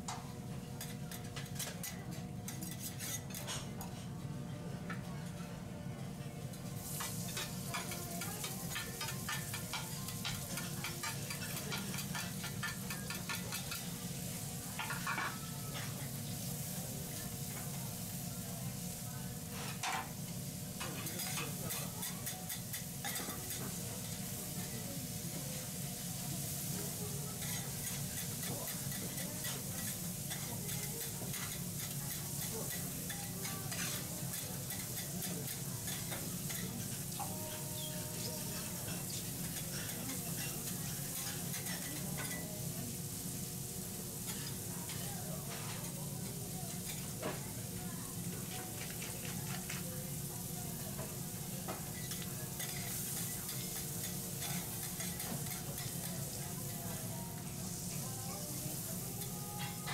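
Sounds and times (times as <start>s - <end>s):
food sizzling on a griddle: 0.0s - 4.1s, 6.4s - 59.9s
metal spatulas scraping on plate: 0.8s - 4.1s.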